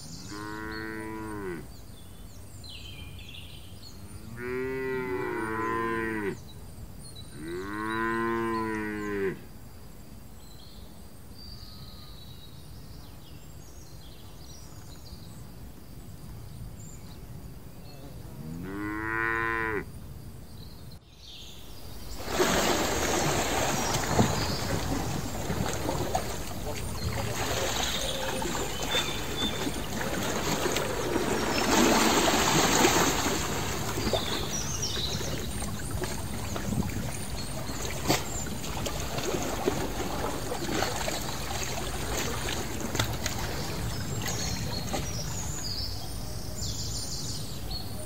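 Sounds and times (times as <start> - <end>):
cattle mooing: 18.4 - 19.8
loud water splashing: 22.1 - 45.8.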